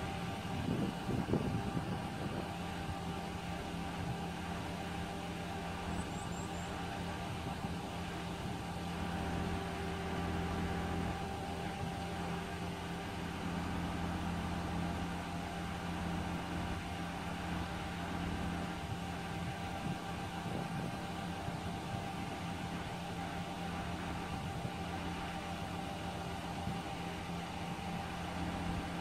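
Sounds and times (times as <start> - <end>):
pump truck engine humming: 0.0 - 29.0.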